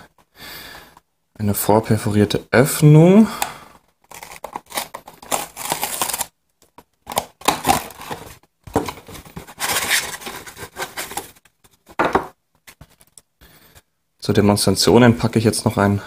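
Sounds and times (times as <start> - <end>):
paper crinkling: 4.0 - 11.9
cardboard tearing: 4.1 - 6.3, 7.0 - 11.4.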